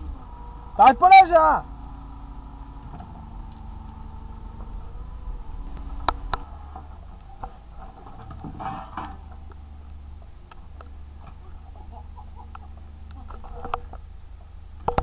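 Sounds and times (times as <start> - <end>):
excavator diesel engine running: 0.0 - 15.0
scraping rustle: 0.0 - 15.0
small clicks and knocks: 12.5 - 15.0.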